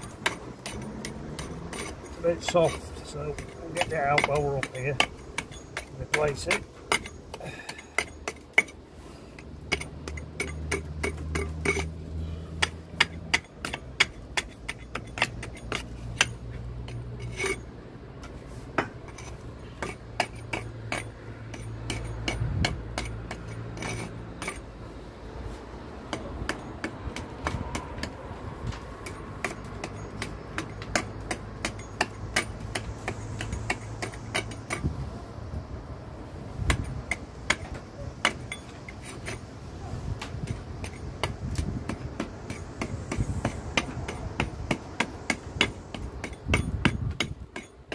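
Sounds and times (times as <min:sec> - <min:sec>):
hammer tapping mortar: 0:00.0 - 0:08.8, 0:09.6 - 0:11.9, 0:12.5 - 0:17.5, 0:26.1 - 0:34.9, 0:40.2 - 0:47.9.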